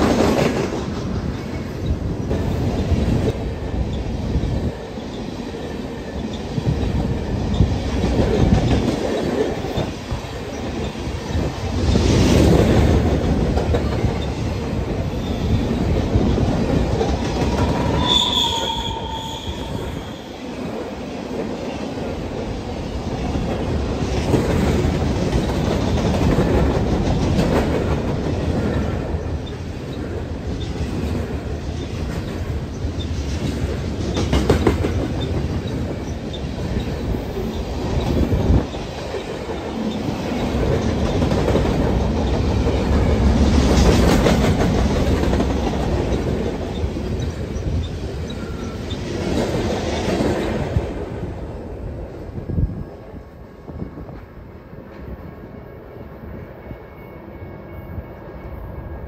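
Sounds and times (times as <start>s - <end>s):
train rumbling on rails: 0.0s - 59.0s
train wheel squeal: 3.5s - 12.3s, 13.7s - 20.8s, 28.6s - 30.9s, 34.0s - 50.0s, 55.0s - 59.0s.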